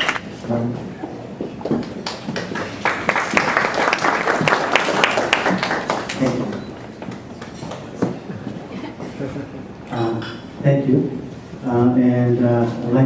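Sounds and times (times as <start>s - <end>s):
audience applauding: 1.8s - 8.3s.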